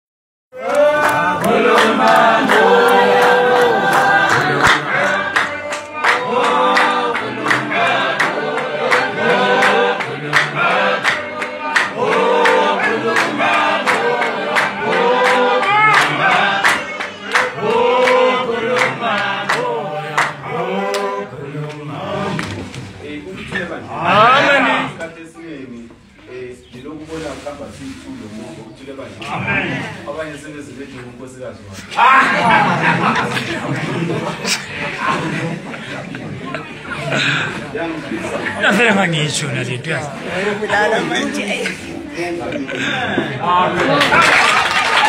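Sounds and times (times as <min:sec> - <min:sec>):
hand clapping: 0:00.6 - 0:21.8, 0:43.9 - 0:45.0
congregation singing a hymn: 0:00.6 - 0:25.2, 0:32.0 - 0:39.4.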